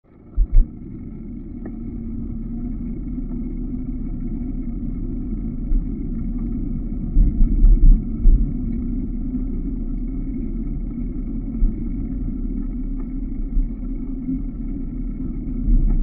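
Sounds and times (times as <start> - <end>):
faint steady hum: 0.1 - 16.0
wind rumble on microphone: 0.1 - 16.0
heavy wind thumps: 0.4 - 0.7.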